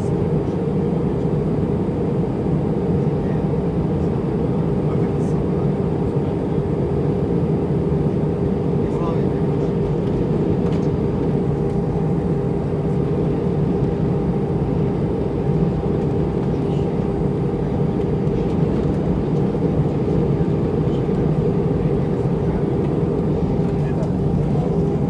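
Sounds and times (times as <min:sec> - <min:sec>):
airplane cabin drone: 0:00.0 - 0:25.0.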